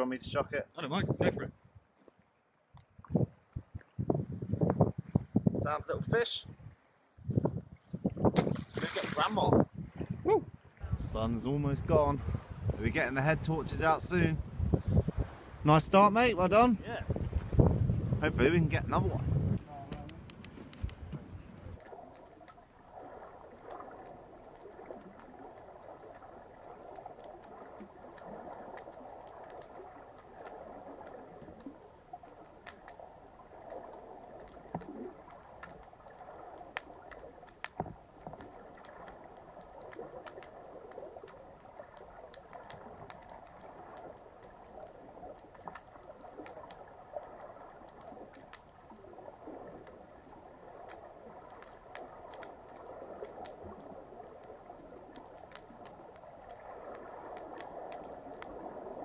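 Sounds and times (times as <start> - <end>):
underwater rush and gurgle: 8.0 - 9.6, 20.3 - 59.0
faint clicks: 19.5 - 22.8, 23.5 - 59.0.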